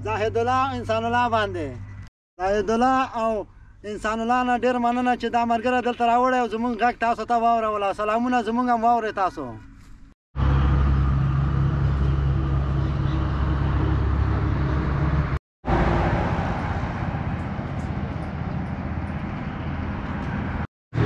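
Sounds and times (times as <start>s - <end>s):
low engine drone: 10.4s - 21.0s.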